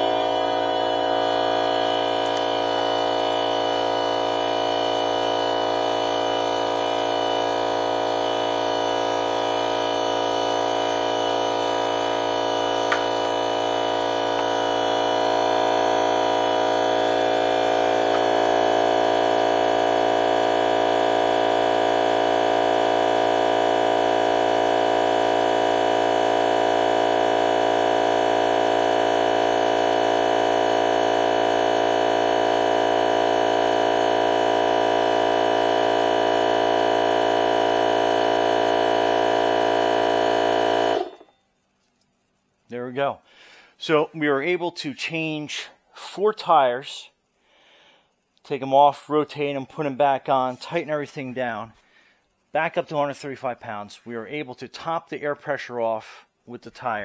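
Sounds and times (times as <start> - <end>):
air compressor running: 0.0 - 54.1, 54.9 - 57.0.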